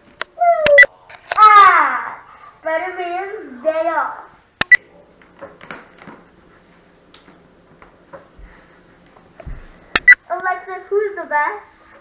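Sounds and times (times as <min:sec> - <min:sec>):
sharp clicks: 0:04.6 - 0:04.8, 0:10.0 - 0:10.2
faint taps and rustling: 0:07.1 - 0:09.8.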